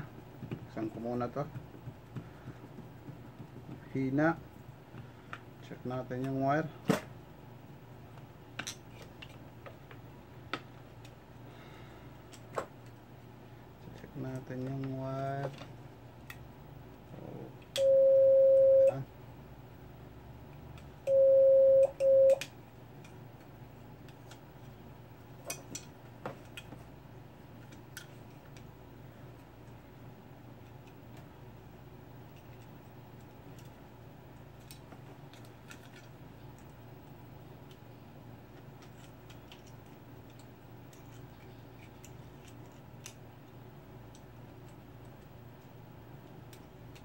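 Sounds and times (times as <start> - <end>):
steady low hum: 0.0 - 47.0
small clicks of handling parts: 8.2 - 11.2, 25.4 - 26.9, 27.6 - 28.7, 32.3 - 36.8, 37.6 - 37.9, 38.5 - 47.0
megaphone steady tone: 17.8 - 19.1, 21.1 - 22.4.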